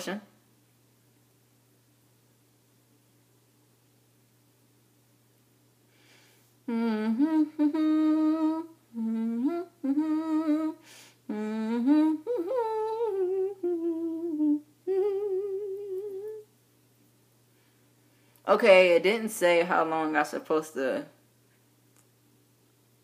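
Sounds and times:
woman humming a tune: 6.7s - 16.5s.

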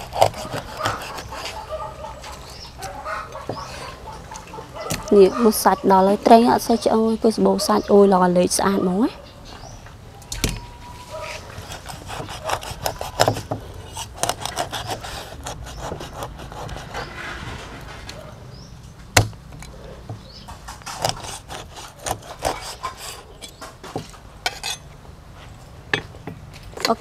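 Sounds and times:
cleaver chopping: 0.0s - 1.6s, 11.6s - 17.1s
cleaver scraping on wood: 0.0s - 5.6s, 11.0s - 18.2s, 20.2s - 24.8s.

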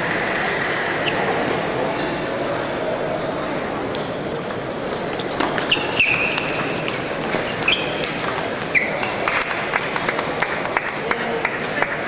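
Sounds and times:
shoes squeaking on floor: 1.0s - 1.4s, 5.0s - 9.4s.

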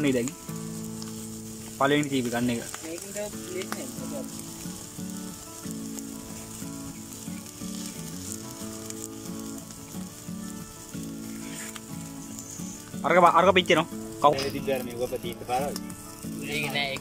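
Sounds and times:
chicken sizzling on grill: 0.0s - 17.0s.

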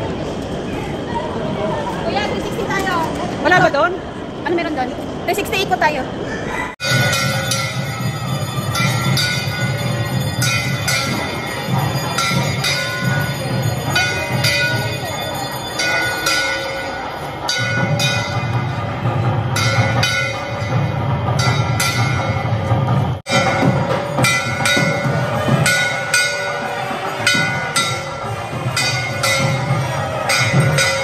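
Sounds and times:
temple bells ringing: 6.8s - 31.0s.

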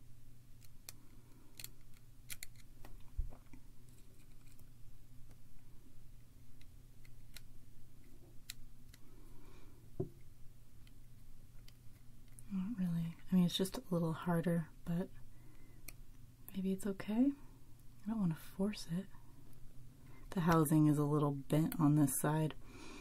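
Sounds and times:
faint low hum: 0.0s - 23.0s
small clicks and scrapes of parts: 0.6s - 9.3s, 10.2s - 12.5s
soft knock: 10.0s - 10.2s.

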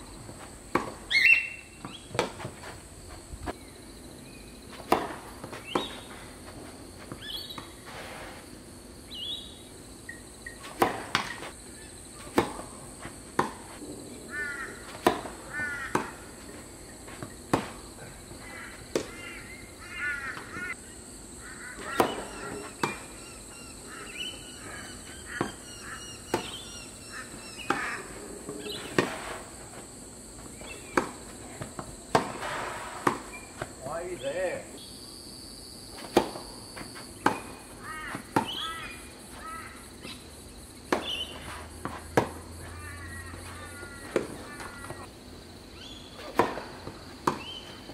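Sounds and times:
high insect drone: 0.0s - 47.9s
birds calling: 1.0s - 2.2s, 3.5s - 6.3s, 7.1s - 7.7s, 9.0s - 12.7s, 14.1s - 29.3s, 30.2s - 31.4s, 36.8s - 46.5s, 47.2s - 47.9s.

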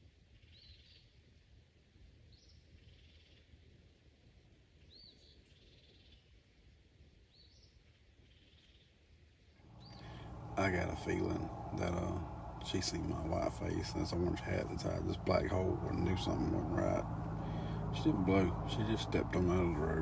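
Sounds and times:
faint low rumble: 9.6s - 20.0s
bird calls: 9.7s - 20.0s.

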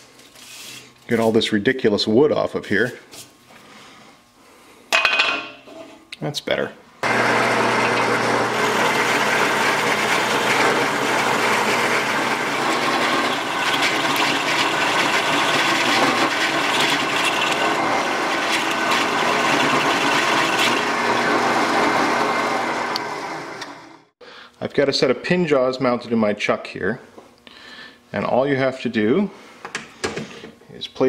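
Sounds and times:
drill bit cutting: 7.0s - 24.0s
drill press motor hum: 7.0s - 24.1s.

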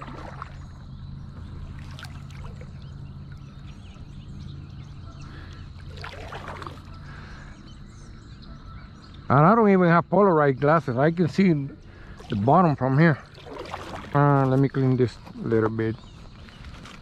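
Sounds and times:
paddle stroke splashing: 0.0s - 0.8s, 1.4s - 3.6s, 5.2s - 7.3s, 11.8s - 14.7s
low steady hum: 0.0s - 17.0s.

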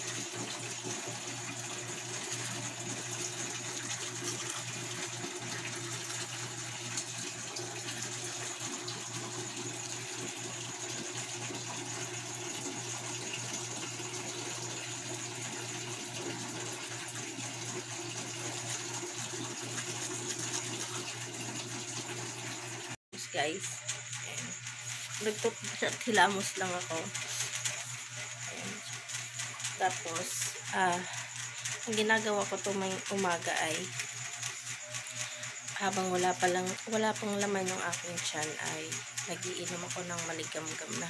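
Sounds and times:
tap water running into sink: 0.0s - 23.0s.

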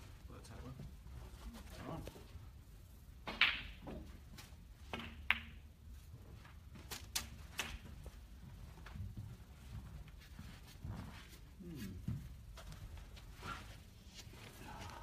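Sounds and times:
snooker balls clicking: 3.2s - 5.8s.

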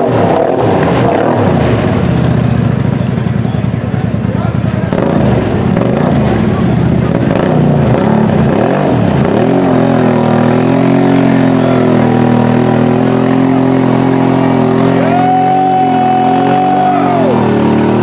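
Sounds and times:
atv engine at high revs: 0.0s - 18.0s
tyres churning through mud: 0.0s - 18.0s.

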